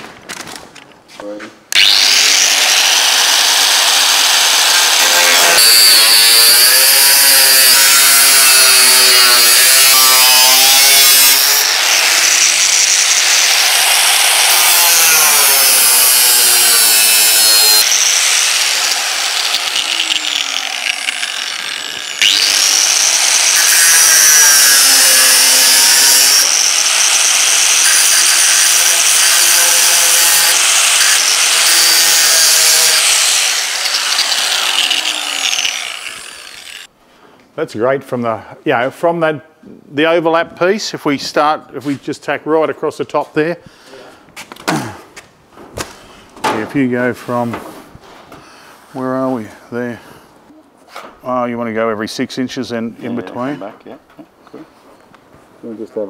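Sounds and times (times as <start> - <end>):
angle grinder grinding metal: 1.7 - 36.9.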